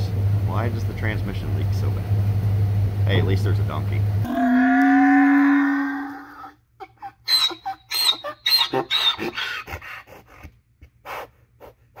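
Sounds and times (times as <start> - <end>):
donkey braying: 4.2 - 10.6
donkey snorting: 7.4 - 12.0.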